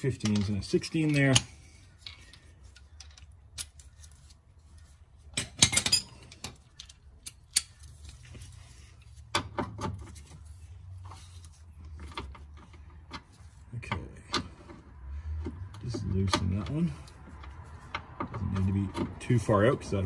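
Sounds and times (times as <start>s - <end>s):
socket wrench clinking and rattling: 5.4s - 8.0s.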